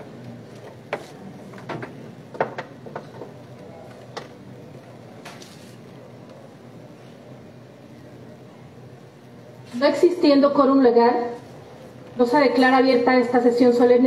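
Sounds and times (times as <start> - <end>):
faint room hum: 0.0 - 14.0
paper rustle: 5.2 - 5.8.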